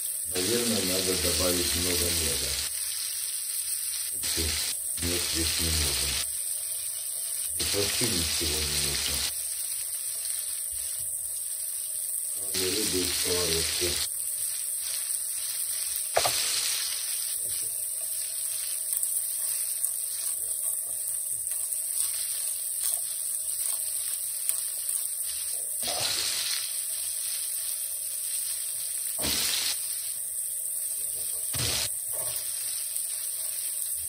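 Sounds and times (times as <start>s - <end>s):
fish frying in oil: 0.0s - 34.0s
sharp oil pop: 29.2s - 29.5s.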